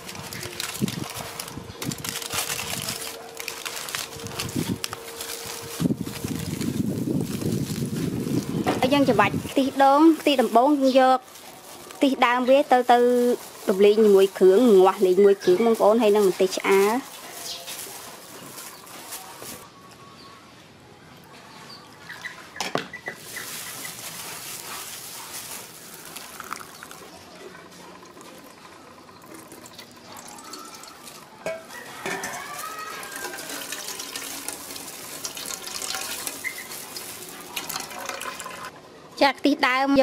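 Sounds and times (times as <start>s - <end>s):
liquid pouring through strainer: 25.9s - 27.1s, 33.0s - 38.7s.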